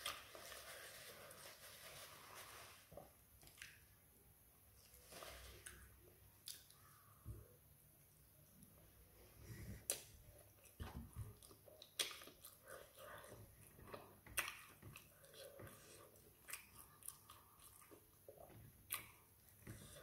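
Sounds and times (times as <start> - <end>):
person chewing wetly: 9.9 - 20.0.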